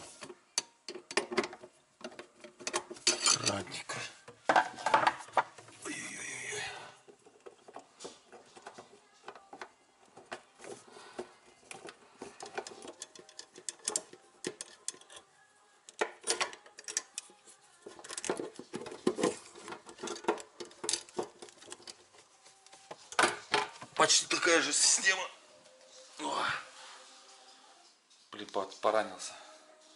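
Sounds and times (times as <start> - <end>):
metal clicks taps and scrapes: 0.2 - 3.6, 7.1 - 15.3, 15.9 - 22.2.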